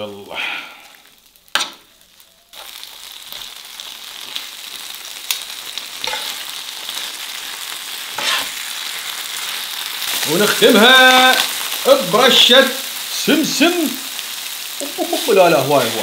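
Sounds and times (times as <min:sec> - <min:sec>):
food sizzling on a griddle: 0:00.0 - 0:16.0
metal spatula scraping: 0:01.5 - 0:01.9, 0:06.0 - 0:07.2, 0:08.0 - 0:08.7.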